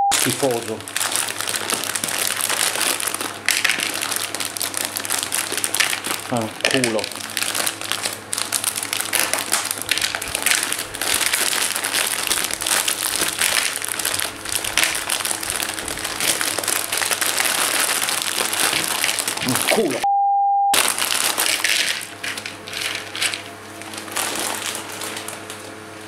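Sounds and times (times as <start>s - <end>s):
plastic bag crinkling: 0.1s - 20.0s, 20.8s - 26.0s.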